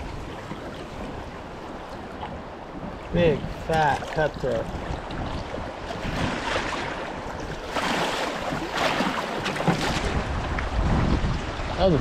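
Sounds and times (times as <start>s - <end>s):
river water splashing: 0.0s - 12.0s
wind on microphone: 0.0s - 12.0s.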